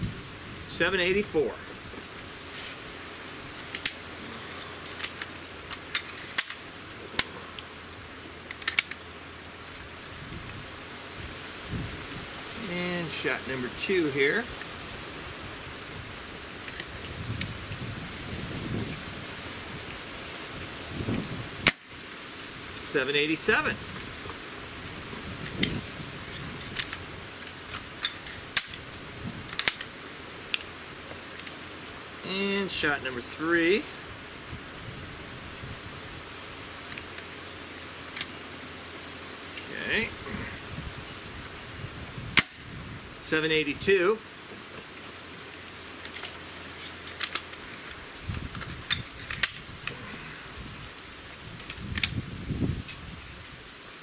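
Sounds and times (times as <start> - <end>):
steady background hiss: 0.0 - 54.0
air rifle lever metallic clicks: 4.9 - 6.6, 8.5 - 9.0, 29.5 - 29.9, 47.0 - 48.0, 48.6 - 50.0.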